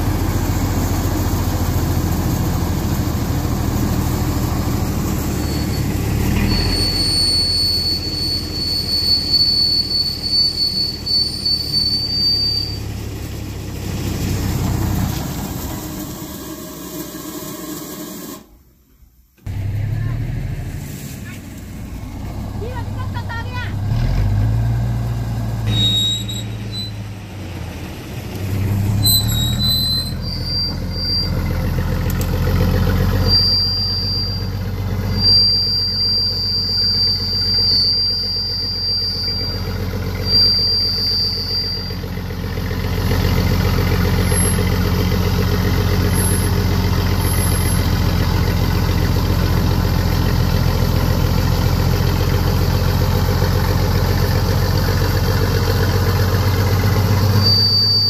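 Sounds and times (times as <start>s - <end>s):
vehicle engine running: 0.0s - 18.4s, 19.5s - 58.0s
high-pitched squeals: 3.2s - 18.5s, 25.6s - 27.1s, 28.5s - 58.0s.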